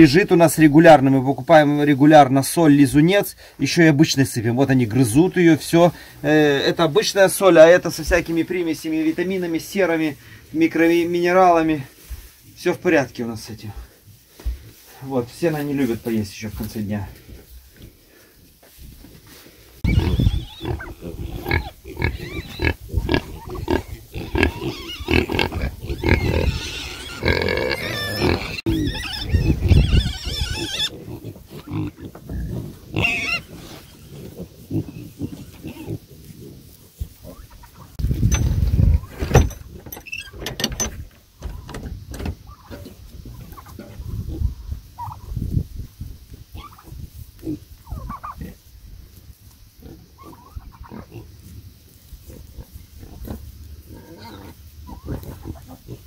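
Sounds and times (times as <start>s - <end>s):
pigs grunting and squealing: 19.8s - 37.6s, 49.8s - 51.4s, 52.3s - 56.0s
knocks and clatter of handling: 38.1s - 43.0s.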